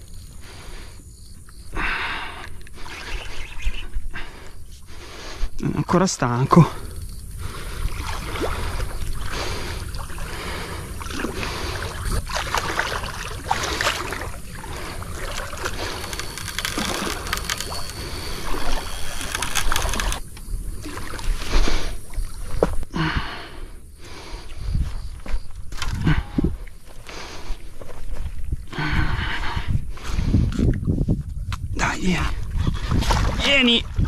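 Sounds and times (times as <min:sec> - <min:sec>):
footsteps at water's edge: 0:07.5 - 0:22.9, 0:24.7 - 0:34.0
water splashing around fish: 0:07.7 - 0:20.2.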